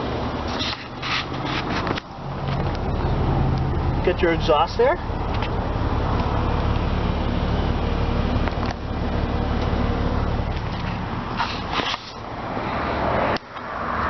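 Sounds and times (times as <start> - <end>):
car engine idling: 0.0 - 13.7.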